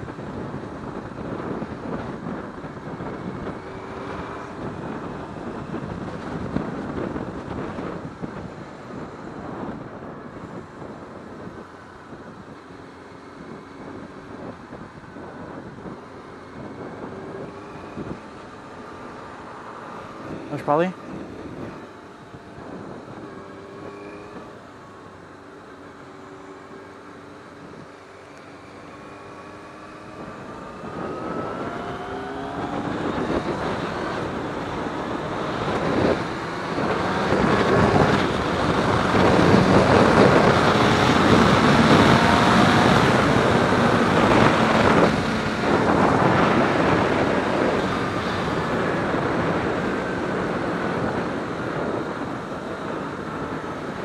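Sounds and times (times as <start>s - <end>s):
wind rush over microphone: 0.0s - 25.2s, 28.9s - 54.0s
motorcycle engine accelerating: 13.0s - 54.0s.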